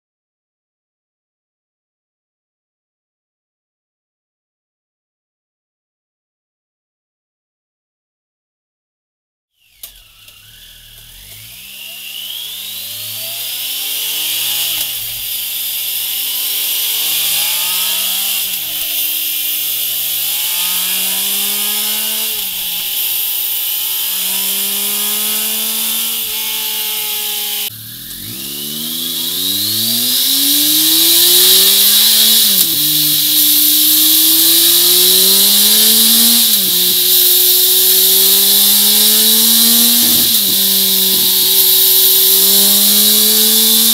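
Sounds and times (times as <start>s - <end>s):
motorcycle engine revving: 9.7s - 43.9s
steady high hiss: 13.6s - 43.9s.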